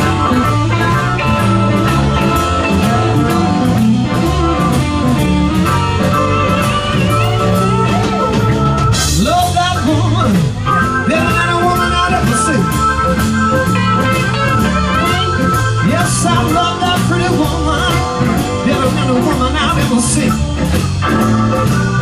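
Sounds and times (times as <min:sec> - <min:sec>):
bass and drums: 0:00.0 - 0:22.0
electric guitar bent notes: 0:00.0 - 0:22.0.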